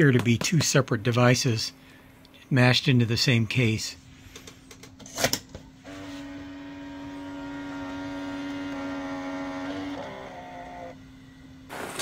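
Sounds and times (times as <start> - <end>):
tape mechanism motor whirring: 5.8 - 11.0.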